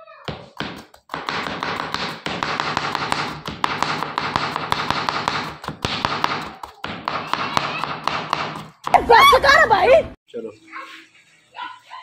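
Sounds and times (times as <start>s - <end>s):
knife chopping on plastic board: 0.3s - 9.0s.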